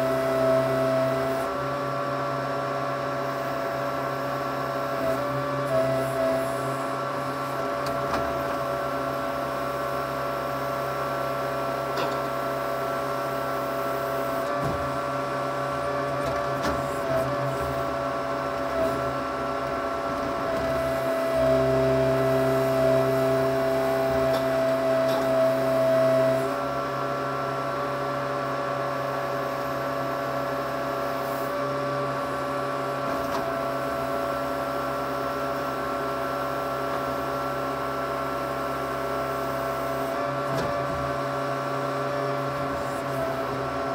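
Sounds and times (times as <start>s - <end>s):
backhoe engine whining: 0.0s - 1.9s, 14.0s - 26.7s.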